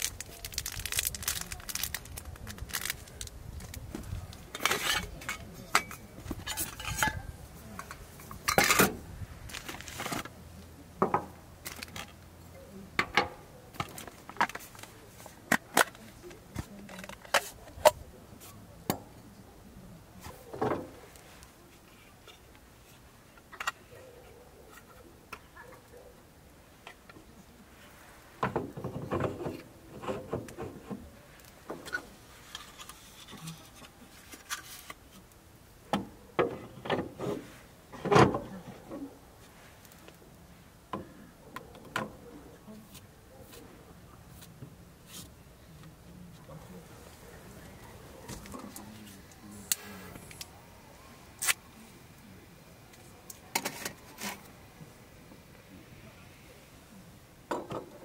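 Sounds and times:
metal pots and utensils clinking: 4.5 - 9.0
items set down on wooden deck: 11.0 - 12.2, 20.2 - 22.5, 28.4 - 35.0, 35.9 - 39.0.

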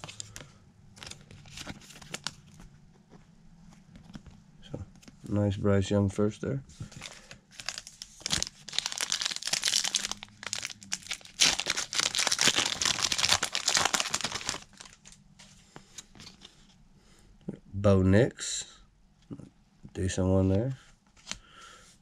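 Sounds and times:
cards rustling: 0.0 - 2.7, 6.8 - 15.2
foil wrapper crinkling: 7.0 - 15.2.

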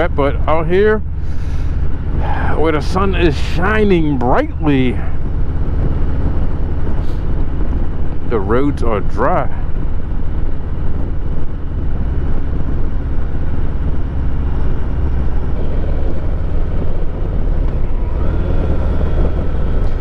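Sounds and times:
motorcycle engine running: 0.0 - 20.0
wind on microphone: 1.0 - 20.0.

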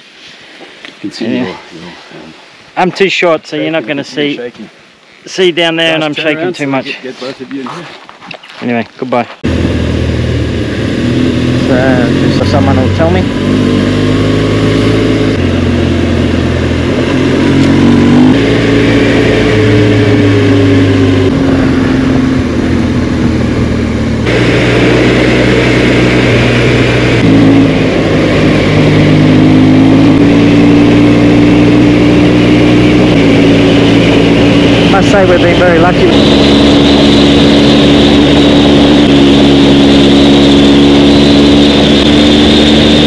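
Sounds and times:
motorcycle engine running: 9.4 - 43.0.

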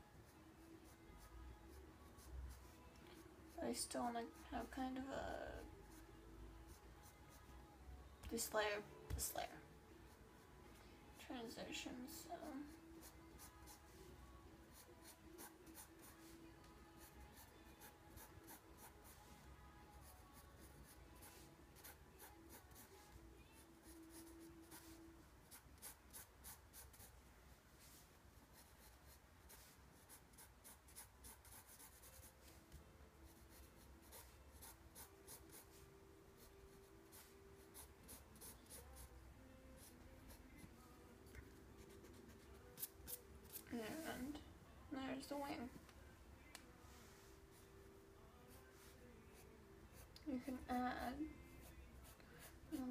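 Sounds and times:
pencil scratching on paper: 14.7 - 16.4, 17.0 - 19.2, 20.0 - 27.2, 27.8 - 32.4, 33.3 - 35.8, 36.4 - 39.1, 51.6 - 52.9.

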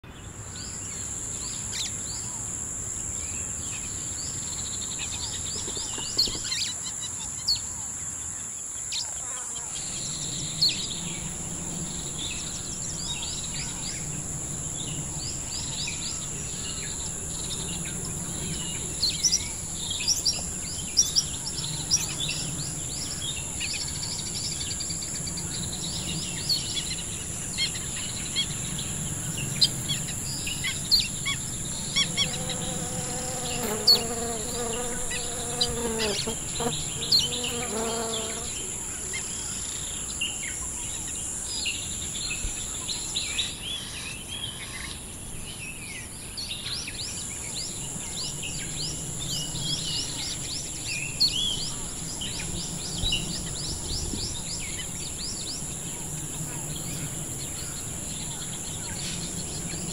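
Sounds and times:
high-pitched insect drone: 9.4 - 44.0.

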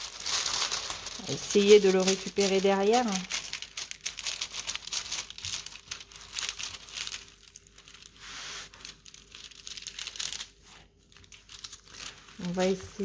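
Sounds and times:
plastic film crinkling: 0.0 - 13.0.

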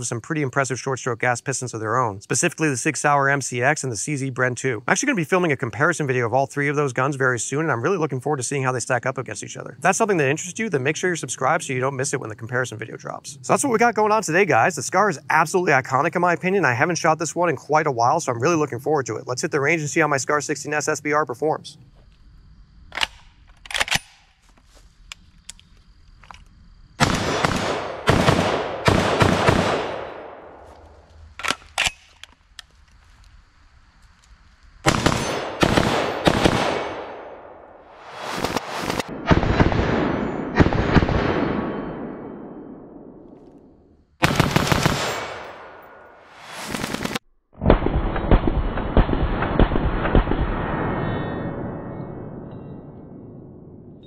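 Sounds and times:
rifle shots with echo: 27.0 - 30.7, 34.8 - 37.6, 38.3 - 43.2, 44.2 - 47.2.

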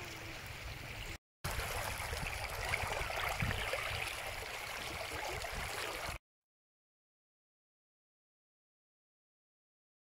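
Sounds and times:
flood water rushing over sand: 1.5 - 6.2.

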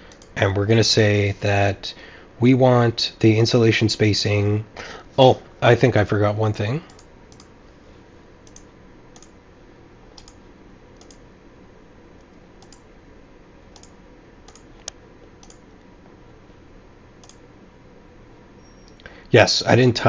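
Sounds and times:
faint steady hiss: 0.0 - 20.0
computer mouse and keyboard clicks: 8.4 - 9.3, 10.2 - 10.4, 11.0 - 11.2, 12.6 - 12.8, 13.8 - 15.6.

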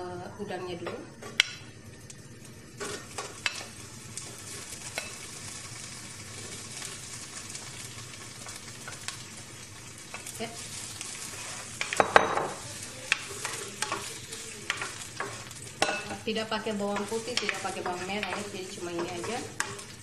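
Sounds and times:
shrimp sizzling in a frying pan: 0.0 - 20.0
stirring clatter: 11.3 - 16.2, 16.8 - 20.0
spoon clicking and scraping: 17.0 - 20.0.

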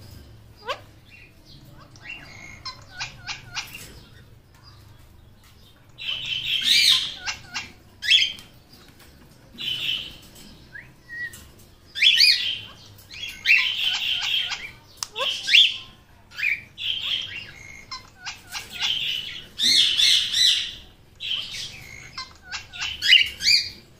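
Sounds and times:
parakeet squawking: 0.6 - 4.3, 6.0 - 8.4, 12.0 - 23.8.

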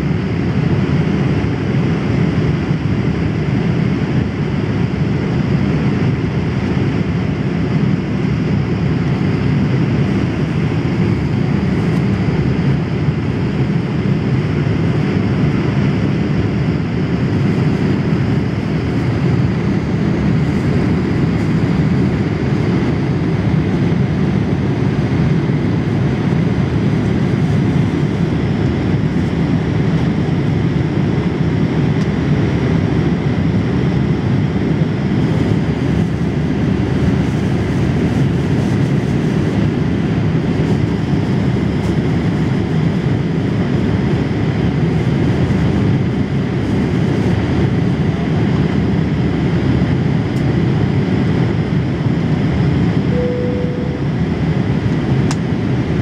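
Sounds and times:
aircraft engines and rushing air: 0.0 - 56.0
faint high whine: 53.0 - 55.4
brief cabin tone: 53.1 - 54.7.

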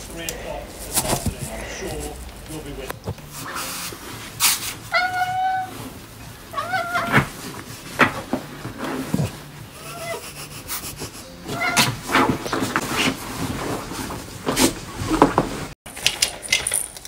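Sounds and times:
bedding rustling and bumps: 0.0 - 9.8, 11.3 - 15.8
cat meowing: 4.9 - 5.9, 6.5 - 7.4, 11.4 - 12.0.

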